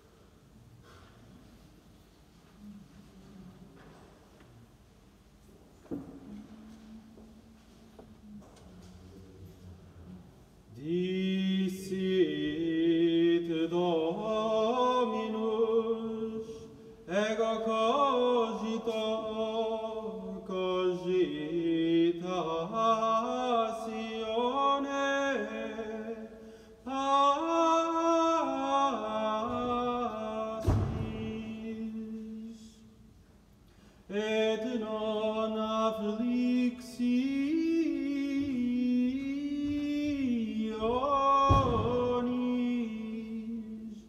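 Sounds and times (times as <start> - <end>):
unaccompanied chant singing: 10.7 - 32.9, 34.1 - 44.0
low thump: 30.6 - 31.5, 41.4 - 42.3.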